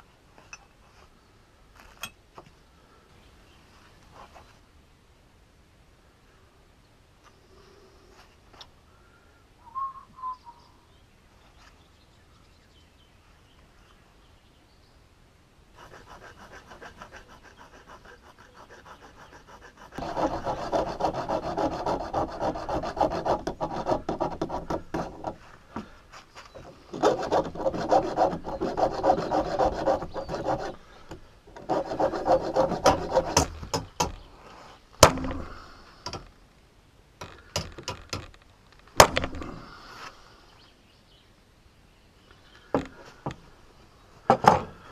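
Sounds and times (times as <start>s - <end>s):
file rasping on steel rod: 15.8s - 25.4s, 26.9s - 30.8s, 31.6s - 33.6s.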